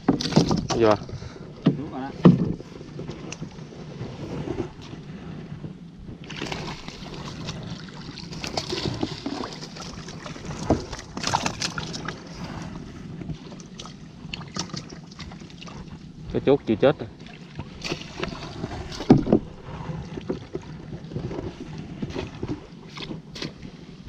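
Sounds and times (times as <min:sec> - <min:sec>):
sharp knocks on boat: 0:00.0 - 0:01.0, 0:01.6 - 0:02.7, 0:18.9 - 0:19.5
paddle splashing water: 0:00.0 - 0:24.0.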